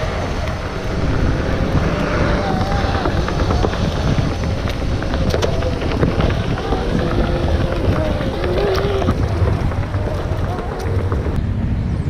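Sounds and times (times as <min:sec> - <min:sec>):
low rumble of wind and rolling: 0:00.0 - 0:12.0.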